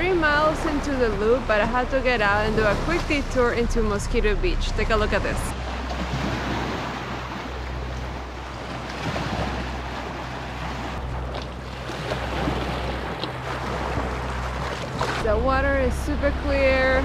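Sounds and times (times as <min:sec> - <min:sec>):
small waves lapping on sand: 0:05.5 - 0:15.3.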